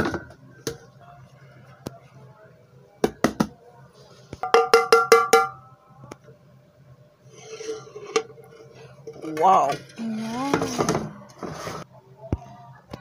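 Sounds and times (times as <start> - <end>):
metal pot knocking on plate: 4.4 - 5.6
ringing metal taps on pot: 4.4 - 5.6.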